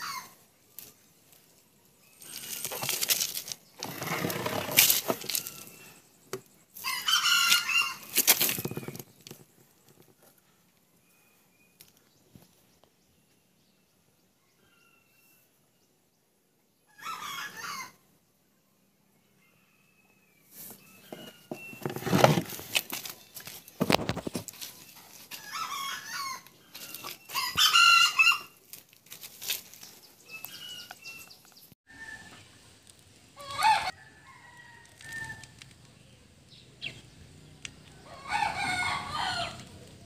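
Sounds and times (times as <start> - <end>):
rooster crowing: 6.8 - 8.1, 16.9 - 18.0, 25.3 - 28.5, 33.4 - 35.5, 38.0 - 39.7.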